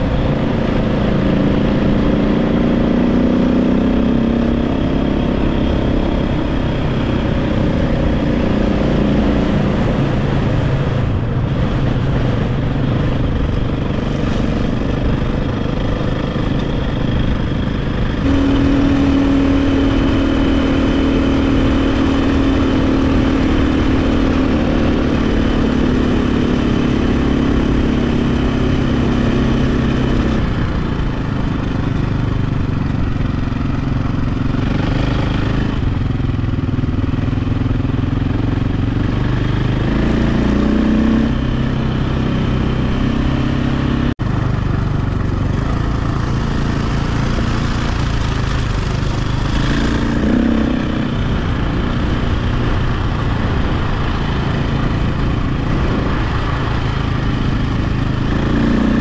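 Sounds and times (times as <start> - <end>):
dirt bike engine: 0.0 - 59.0
steady rushing noise: 4.4 - 33.2, 44.6 - 59.0.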